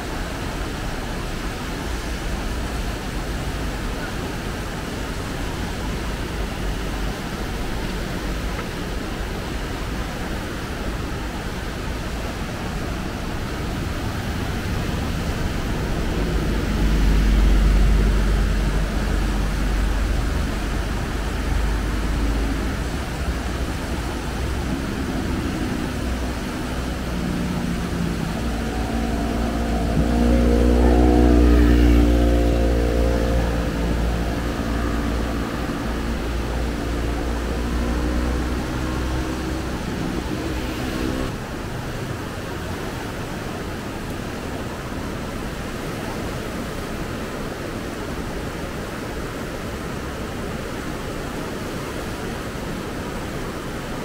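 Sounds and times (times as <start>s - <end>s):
vehicles driving past: 0.0s - 52.8s
rushing stream water: 0.0s - 54.0s.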